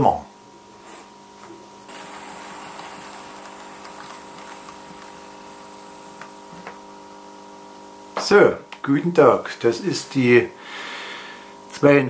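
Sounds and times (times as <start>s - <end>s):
model train motor whirring: 1.9s - 6.3s.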